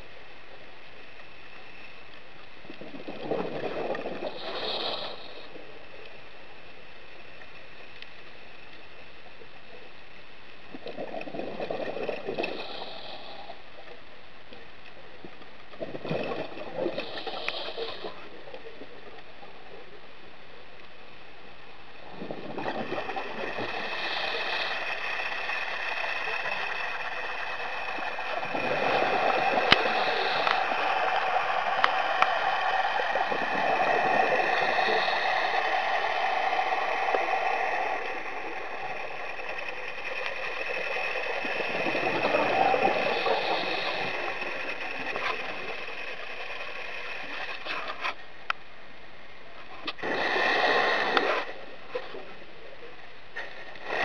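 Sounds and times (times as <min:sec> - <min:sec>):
regulator hiss on inhale: 0:03.9 - 0:07.4, 0:10.9 - 0:14.0, 0:16.5 - 0:18.8, 0:22.0 - 0:47.8, 0:49.8 - 0:52.1.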